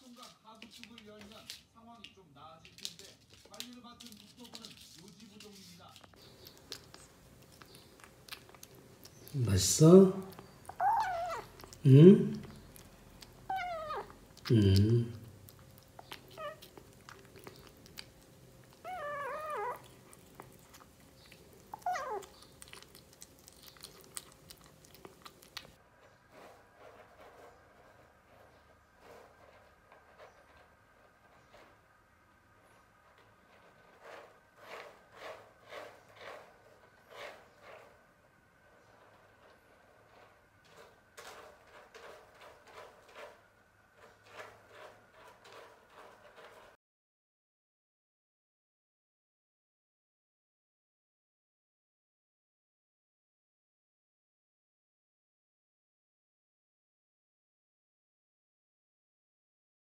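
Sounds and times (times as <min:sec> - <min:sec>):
kitten scratching in cat litter: 0:00.0 - 0:14.5, 0:15.2 - 0:46.8
kitten chewing food: 0:05.4 - 0:28.4
kitten meowing: 0:10.6 - 0:11.7, 0:13.5 - 0:14.1, 0:16.3 - 0:16.7, 0:18.7 - 0:19.9, 0:21.7 - 0:22.4.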